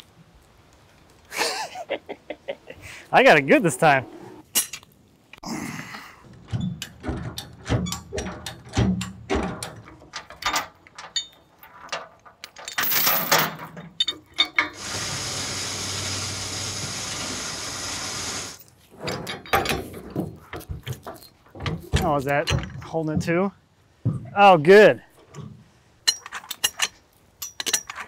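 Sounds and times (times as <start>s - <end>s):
chain clanking: 6.2s - 14.8s, 18.5s - 23.0s, 25.2s - 28.0s.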